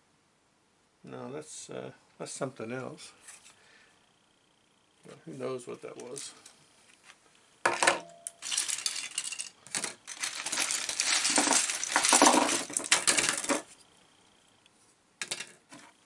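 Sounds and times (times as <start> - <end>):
plastic bricks clattering: 7.7 - 13.8, 15.2 - 15.8.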